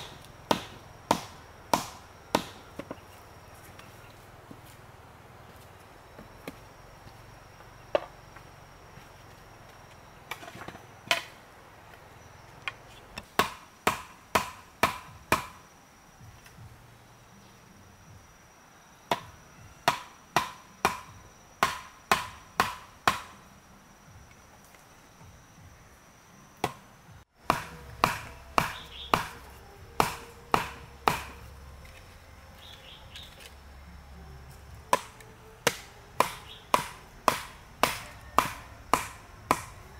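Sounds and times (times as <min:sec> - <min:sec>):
mallet knocking bamboo slats: 0:00.0 - 0:03.0, 0:27.4 - 0:31.4, 0:34.9 - 0:39.8.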